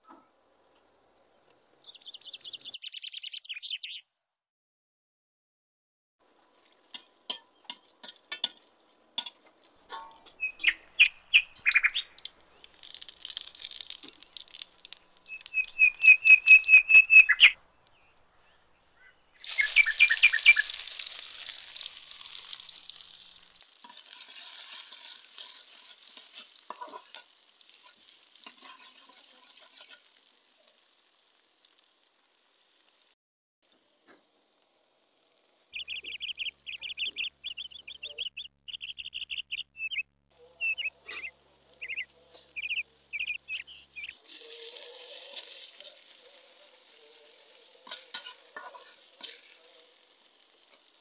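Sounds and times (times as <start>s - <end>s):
bird chirps: 1.2s - 4.1s, 10.2s - 12.8s, 15.2s - 20.8s, 35.7s - 44.2s
chillies crackling in hot oil: 6.2s - 51.0s
onion sizzling: 6.2s - 51.0s.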